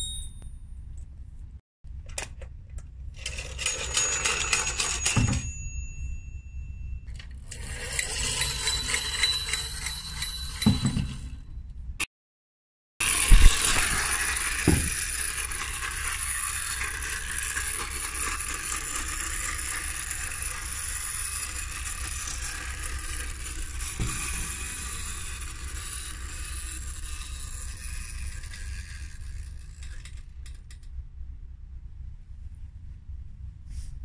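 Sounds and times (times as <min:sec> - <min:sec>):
clockwork motor whirring: 0:07.4 - 0:10.2, 0:13.0 - 0:30.3.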